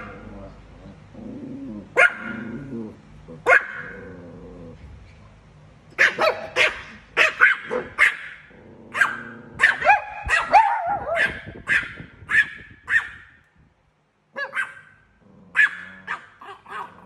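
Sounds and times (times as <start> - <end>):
small dog yapping: 2.0 - 2.5, 3.5 - 4.0, 6.0 - 13.3, 14.4 - 17.0.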